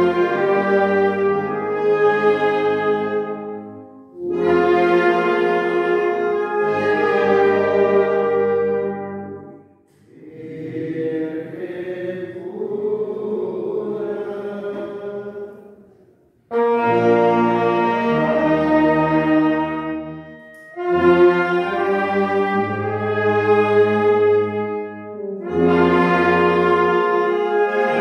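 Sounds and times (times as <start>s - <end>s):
brass band playing: 0.0s - 9.7s, 16.5s - 28.0s.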